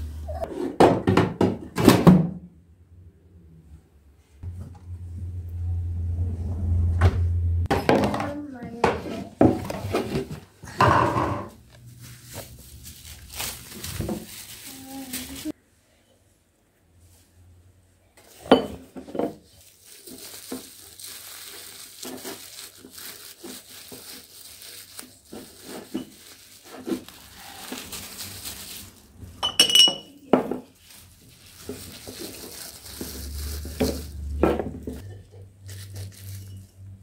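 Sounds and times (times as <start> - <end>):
plastic bags rustling: 11.5 - 15.6, 18.2 - 37.0
glass jars knocking on wood: 29.4 - 30.1.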